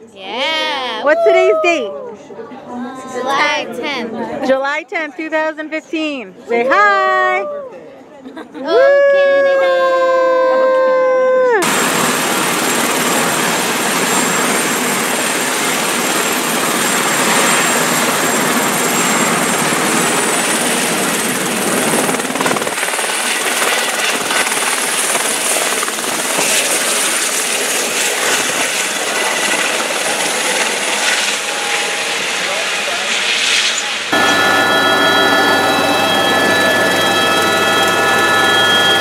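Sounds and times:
helicopter turbine and rotor: 11.6s - 39.0s
high turbine whine: 11.6s - 39.0s.

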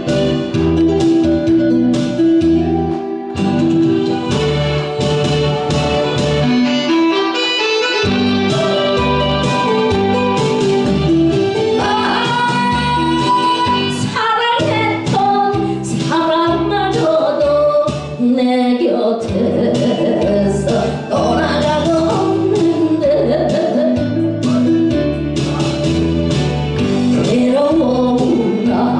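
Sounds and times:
instrumental music with beat: 0.0s - 28.9s
woman singing into microphone: 11.8s - 24.3s, 27.1s - 28.9s.

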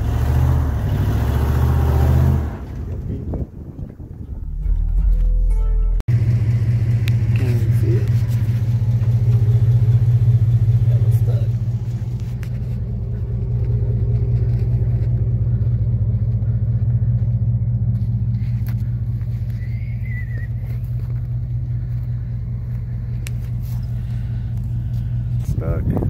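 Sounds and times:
truck engine idling: 6.1s - 26.0s.

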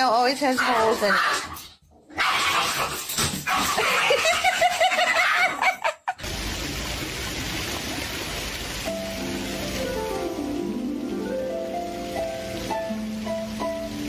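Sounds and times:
fountain water hissing: 6.2s - 14.0s.

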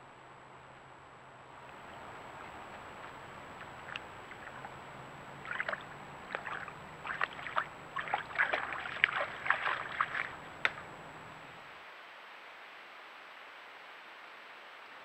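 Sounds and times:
water splashing: 1.6s - 11.6s.

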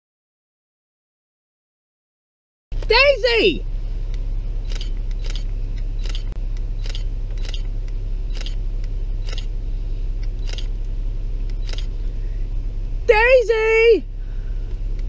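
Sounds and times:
steady low hum: 2.7s - 15.0s
camera shutter clicking: 4.6s - 7.7s, 8.3s - 8.6s, 9.2s - 9.5s, 10.4s - 10.7s, 11.6s - 11.9s.

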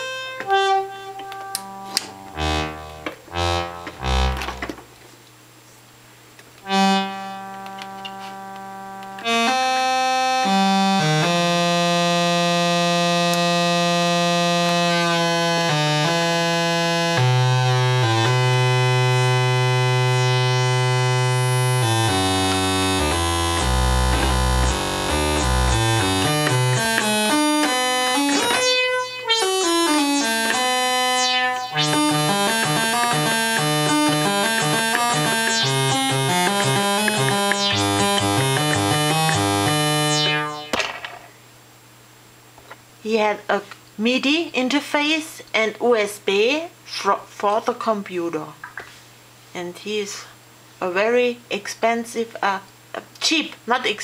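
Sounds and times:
analog synthesizer notes: 0.0s - 4.9s, 6.6s - 41.4s.

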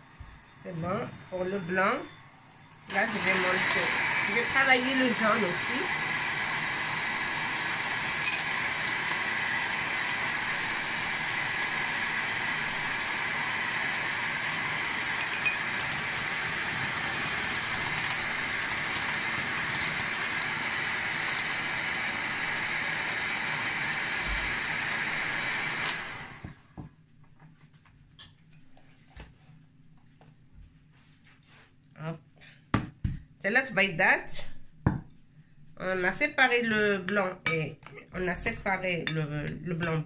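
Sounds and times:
electric hand mixer running: 2.8s - 26.8s
beaters clinking against glass: 15.2s - 16.0s.

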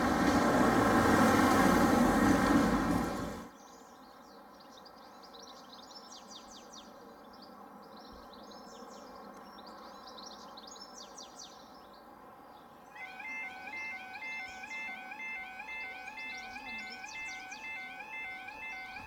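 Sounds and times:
songbird chirping: 0.0s - 19.0s
level crossing alarm warbling: 13.0s - 19.0s.

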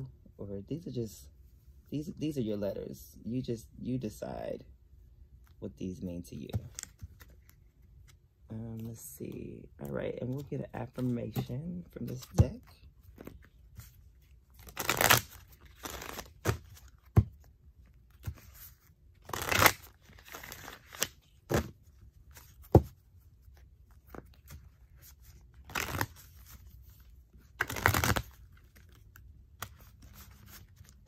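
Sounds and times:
cards being shuffled: 9.8s - 31.0s.

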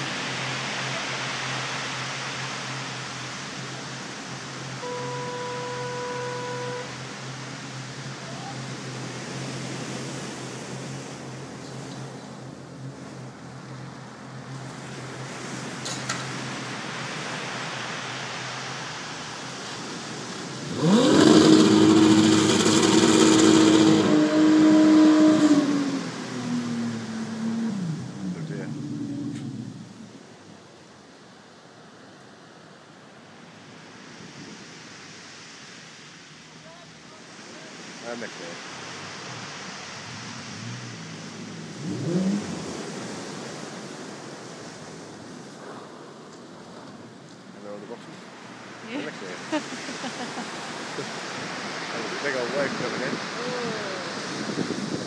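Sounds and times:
waves breaking on shingle beach: 0.0s - 13.3s, 14.4s - 29.0s, 33.6s - 55.0s
boat engine revving: 0.0s - 30.2s, 36.6s - 45.4s, 47.9s - 55.0s
wind: 0.0s - 55.0s
engine revving high: 20.6s - 29.8s, 39.4s - 43.2s
wind on microphone: 52.8s - 55.0s.

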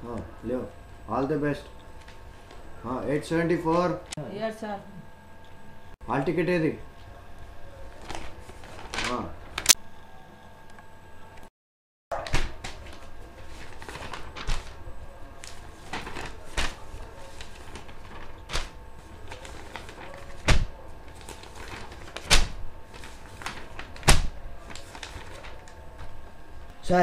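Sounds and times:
paper rustling: 7.8s - 9.8s, 12.2s - 26.7s.

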